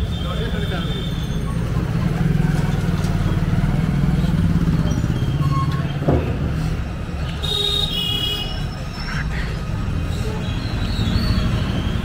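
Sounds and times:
street traffic: 0:00.0 - 0:12.0
short thump: 0:06.0 - 0:06.8.

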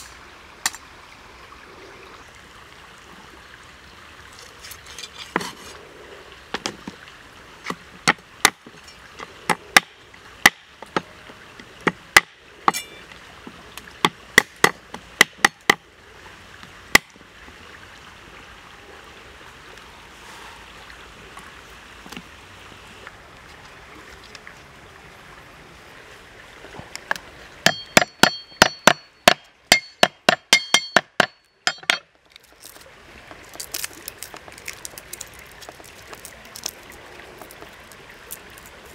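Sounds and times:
cleaver chopping on wooden block: 0:09.8 - 0:11.0, 0:27.6 - 0:32.0.

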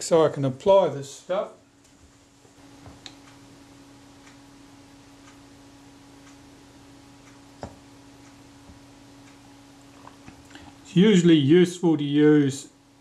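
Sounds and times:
steady low hum: 0:00.0 - 0:13.0
light ticks: 0:03.0 - 0:03.4, 0:04.2 - 0:04.4, 0:05.2 - 0:05.4, 0:08.2 - 0:09.4.

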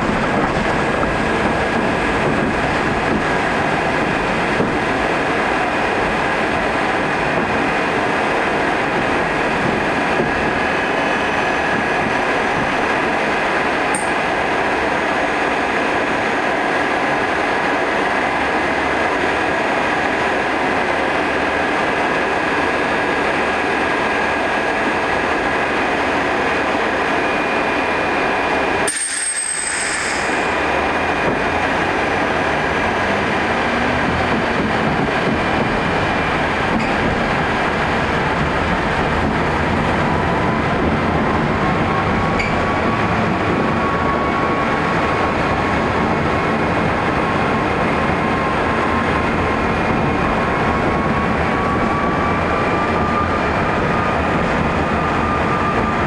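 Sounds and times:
tram motor whine: 0:00.0 - 0:56.0
tram wheels rumbling on rails: 0:00.0 - 0:56.0.

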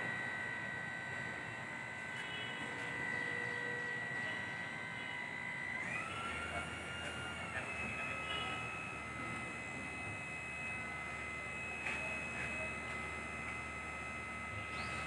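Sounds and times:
hydraulic pump motor whining: 0:00.0 - 0:15.0.

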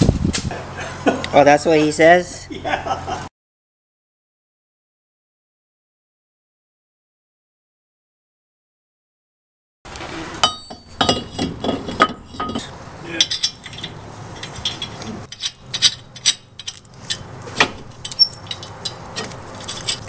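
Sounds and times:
metal clinks and clatter: 0:10.4 - 0:20.0.

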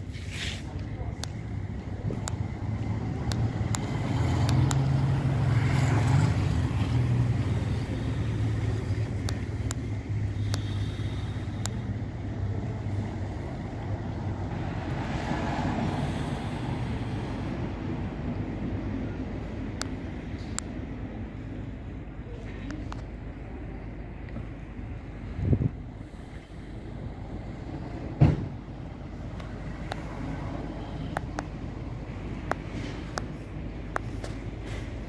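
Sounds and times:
low engine rumble: 0:00.0 - 0:35.0
faint ticks: 0:10.4 - 0:10.8.

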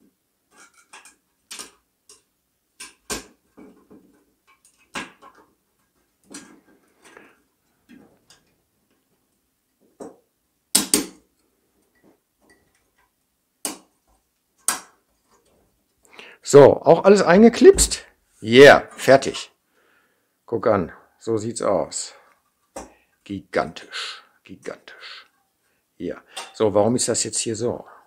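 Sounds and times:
sheet-metal parts clicking: 0:00.5 - 0:07.2.

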